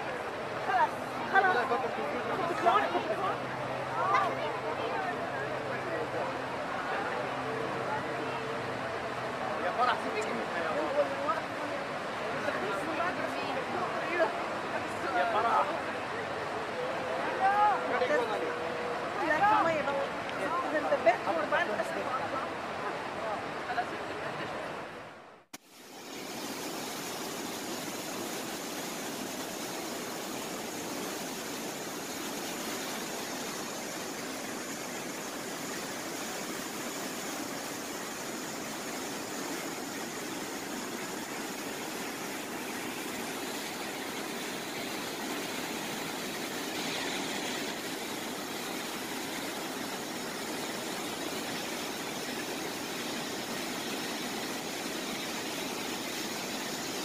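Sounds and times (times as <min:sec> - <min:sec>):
water pouring and splashing: 0:25.6 - 0:57.0.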